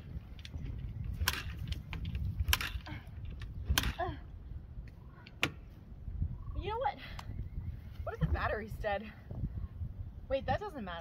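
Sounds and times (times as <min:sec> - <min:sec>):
dirt bike kickstarter clacks: 0:00.3 - 0:04.1.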